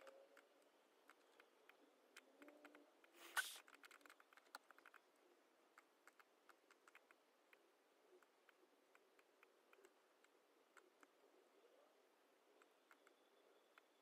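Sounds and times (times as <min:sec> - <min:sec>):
keyboard and mouse clicks: 0:00.0 - 0:11.2, 0:12.6 - 0:14.0
brief scrape: 0:03.2 - 0:03.6.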